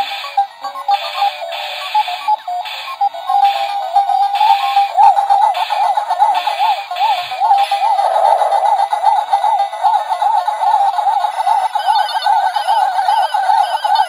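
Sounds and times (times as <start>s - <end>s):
arcade siren tone: 0.7s - 14.0s
eight-bit game bleeps: 0.9s - 8.8s, 11.4s - 14.0s
higher wavering tone: 7.8s - 8.8s.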